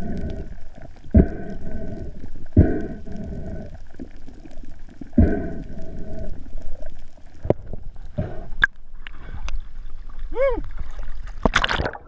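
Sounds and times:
muffled underwater noise: 0:00.0 - 0:08.6
bubbling rush with held tone: 0:00.0 - 0:10.6.

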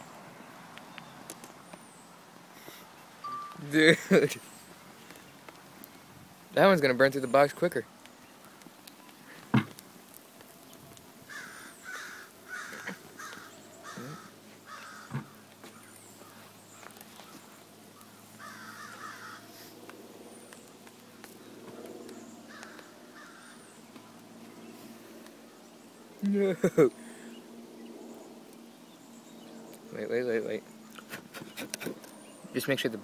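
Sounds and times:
harsh bird calls: 0:10.6 - 0:33.0.

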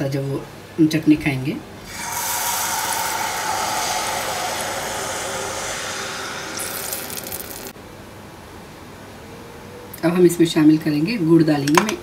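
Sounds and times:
liquid sizzling in hot oil: 0:01.9 - 0:07.8.

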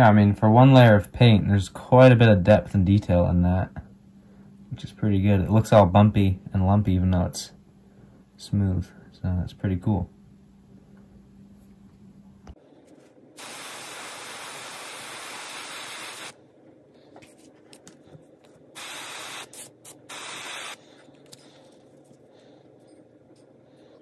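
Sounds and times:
airbrush hissing: 0:13.4 - 0:16.4, 0:18.8 - 0:20.8.

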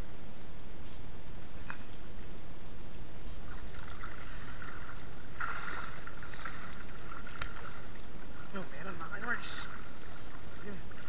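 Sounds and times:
water sloshing from wading: 0:03.2 - 0:11.0.

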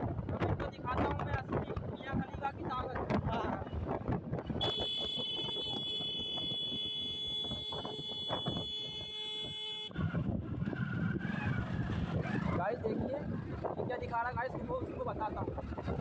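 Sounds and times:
engine and wind noise: 0:00.0 - 0:16.0
motorcycle horn blast: 0:04.6 - 0:09.9.

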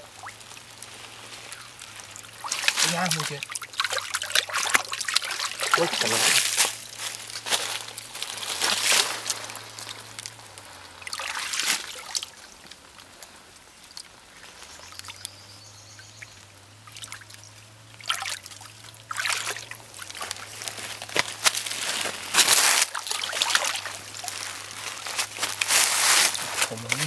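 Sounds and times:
faint water trickling: 0:00.0 - 0:27.0
hands splashing in muddy water: 0:01.5 - 0:10.0, 0:11.0 - 0:12.3, 0:18.0 - 0:27.0.

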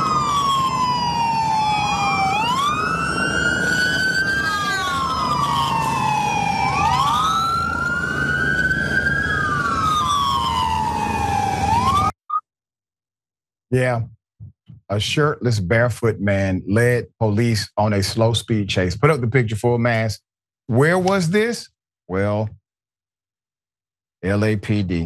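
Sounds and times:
police sirens wailing: 0:00.0 - 0:12.2.

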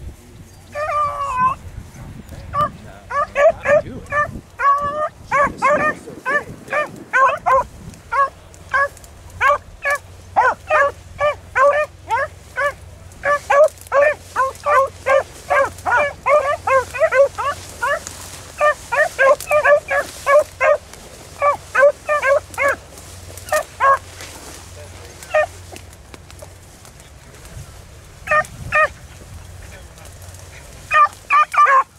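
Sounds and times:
hounds baying: 0:00.6 - 0:01.7, 0:02.3 - 0:31.9.

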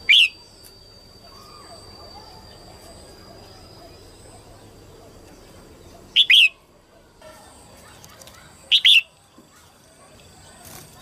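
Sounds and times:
bulbul chirping call: 0:00.0 - 0:00.6, 0:06.0 - 0:06.6, 0:08.7 - 0:09.2.

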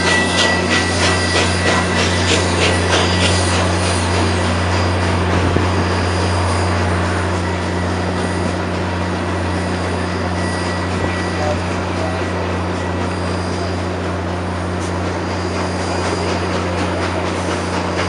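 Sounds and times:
train wheels rumbling on rail: 0:00.0 - 0:18.0
wheels clicking over rail joints: 0:07.3 - 0:18.0.

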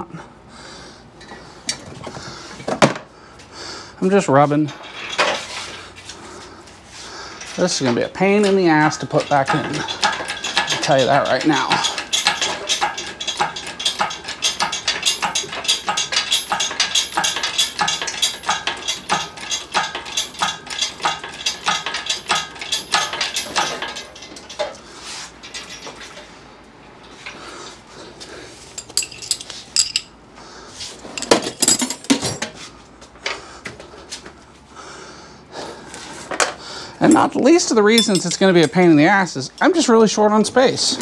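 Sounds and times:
engine hoist clicking: 0:07.4 - 0:24.8
metal clinking on metal: 0:07.4 - 0:24.8, 0:28.8 - 0:30.2, 0:31.2 - 0:32.5, 0:37.0 - 0:39.9.

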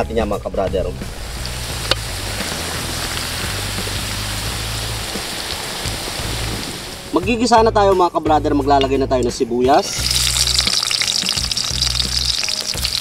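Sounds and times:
vegetables sizzling in oil: 0:01.0 - 0:07.1, 0:09.8 - 0:13.0.

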